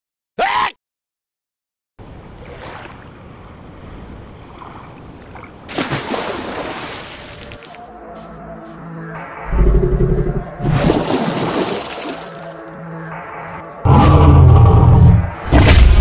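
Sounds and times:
ocean waves rushing: 2.3 - 7.8
loud water splash: 5.7 - 7.8, 10.6 - 12.4.

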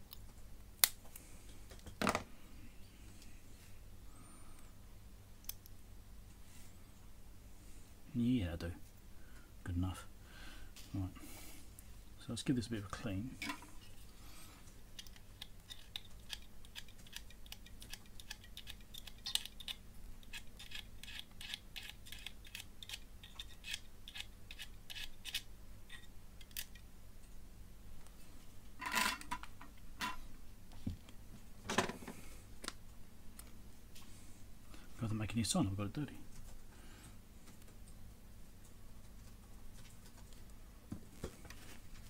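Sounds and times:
knife blade scraping metal: 15.7 - 26.7.

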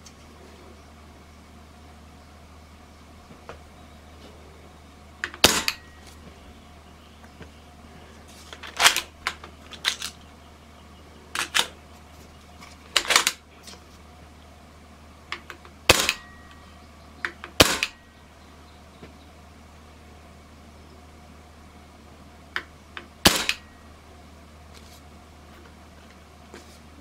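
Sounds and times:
suppressed air rifle shots: 5.3 - 5.9, 15.9 - 16.3, 17.5 - 18.0, 23.2 - 23.7.

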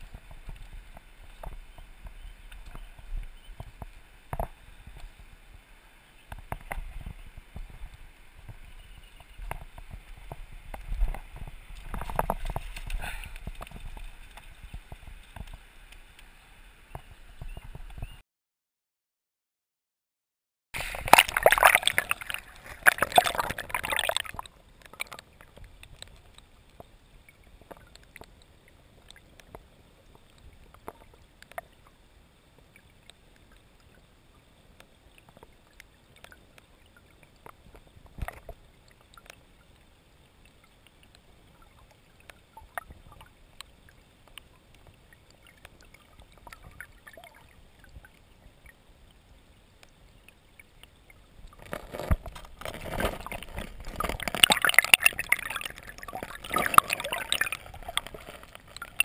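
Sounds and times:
muffled stream underwater: 0.0 - 18.2, 20.8 - 59.0
faint clicks and knocks: 6.3 - 16.3, 22.1 - 27.0, 27.6 - 31.9
river water splashing: 20.8 - 29.4, 40.4 - 48.7, 49.8 - 59.0.

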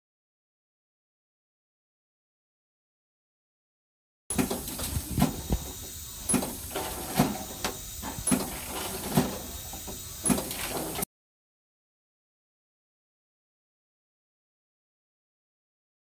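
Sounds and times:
cutting machine knocks: 4.3 - 11.0
compressed air hiss: 4.4 - 11.0.

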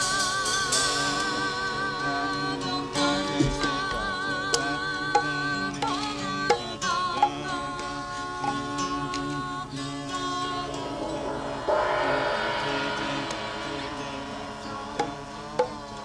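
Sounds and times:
steady drone: 8.3 - 16.0
wavering melody: 9.7 - 16.0
bright noisy texture: 9.8 - 16.0.

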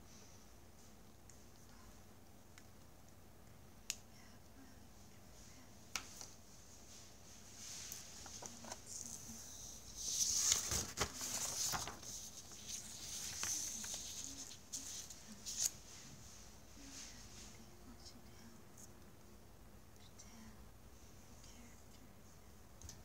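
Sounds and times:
paper rustling and crinkling: 7.6 - 16.2.

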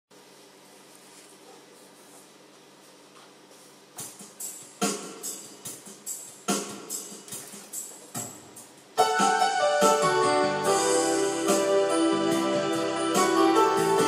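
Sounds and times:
electronic keyboard piano notes: 9.0 - 14.0.

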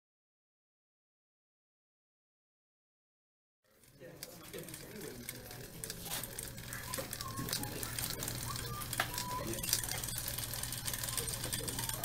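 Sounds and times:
electric gear motors humming: 3.7 - 12.0
robot tracks clicking and rattling: 3.7 - 12.0.

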